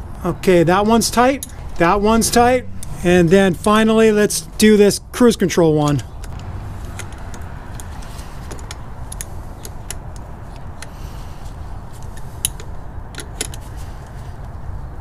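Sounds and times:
metallic wrench clicks: 0:01.3 - 0:01.6, 0:08.5 - 0:11.0, 0:12.1 - 0:13.6.

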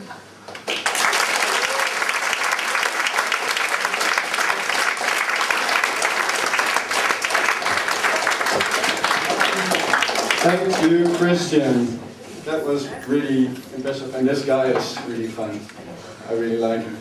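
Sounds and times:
audience applauding: 0:00.5 - 0:11.4.

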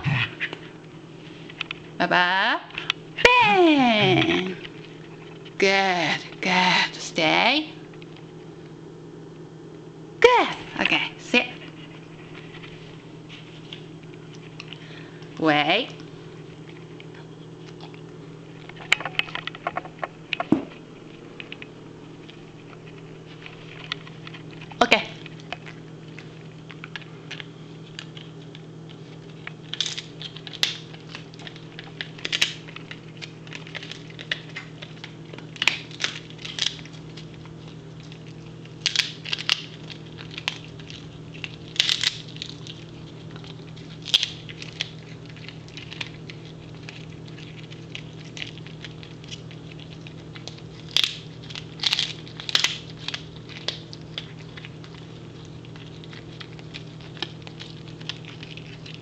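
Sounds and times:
steady low hum: 0:00.0 - 0:59.0
dog crunching a bone: 0:16.0 - 0:59.0.

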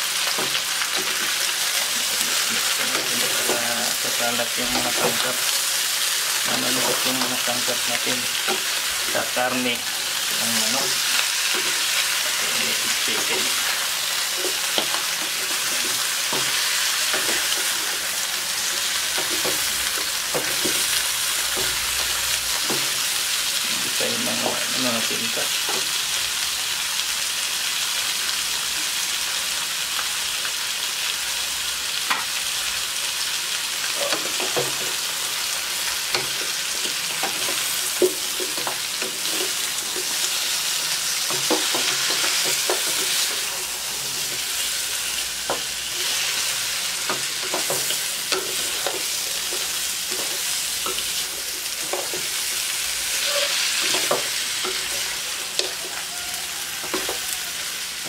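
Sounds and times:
chicken sizzling in a wok: 0:00.0 - 0:58.0
spatula scraping a wok: 0:33.9 - 0:56.1.

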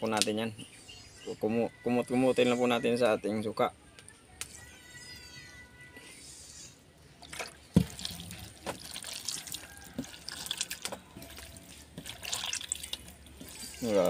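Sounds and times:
hands squelching wet fish: 0:07.2 - 0:14.0
vinegar pouring: 0:07.3 - 0:14.0.

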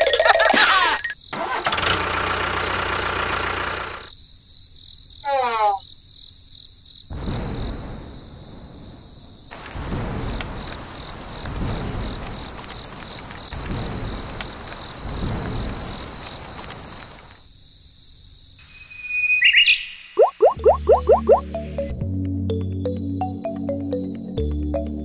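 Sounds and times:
low thunder rumbles: 0:07.1 - 0:17.3
rain hissing: 0:07.1 - 0:17.4
high chirp: 0:18.9 - 0:21.9.

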